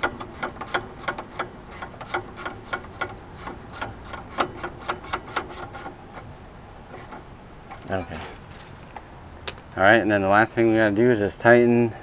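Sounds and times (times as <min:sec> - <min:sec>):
ratcheting wrench clicking: 0:00.0 - 0:06.0.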